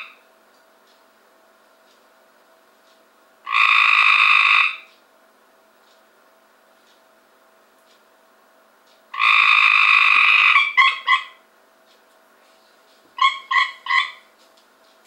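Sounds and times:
tree frog trilling: 0:03.4 - 0:04.9, 0:09.1 - 0:11.4, 0:13.2 - 0:14.3.

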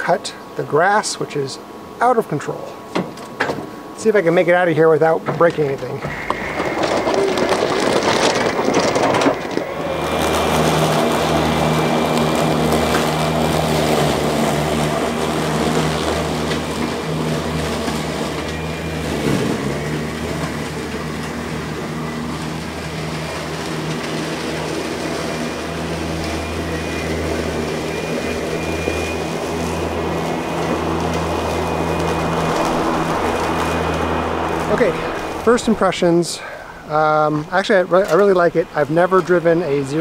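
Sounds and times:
faint high whine: 0:00.0 - 0:40.0
mower motor hum: 0:00.0 - 0:40.0
blades swishing through grass: 0:06.1 - 0:35.5.

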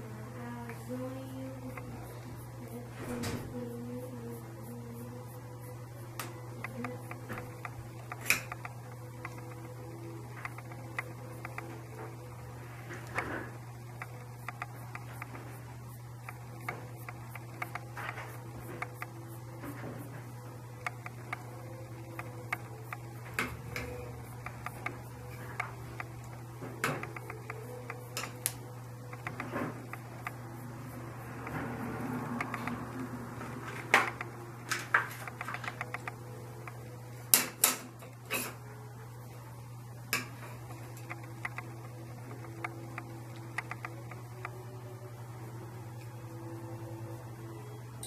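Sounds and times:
steady low hum: 0:00.0 - 0:48.0
light irregular clicks: 0:40.2 - 0:44.6.

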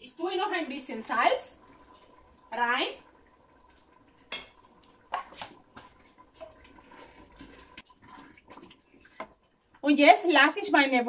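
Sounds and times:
utensil scraping pot stirring: 0:04.3 - 0:09.5.

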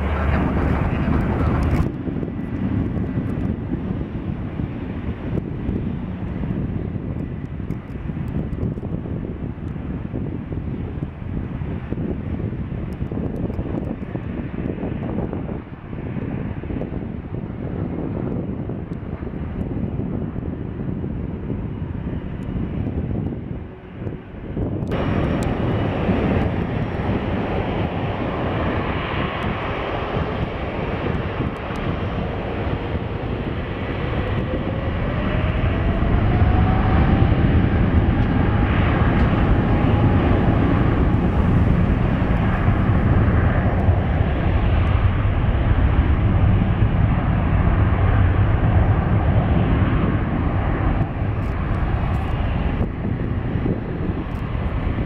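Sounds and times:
jet engines spooling up: 0:22.7 - 0:55.0.

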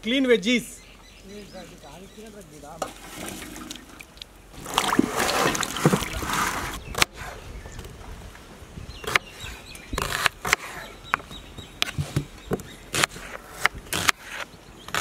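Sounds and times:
water splashing in steel bowl: 0:02.9 - 0:06.3.

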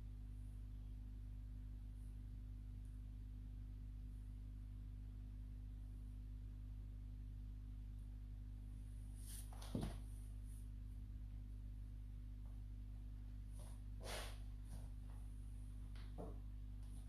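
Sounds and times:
low hum of room tone: 0:00.0 - 0:17.0
brief scuff: 0:09.2 - 0:10.0, 0:14.0 - 0:14.4.

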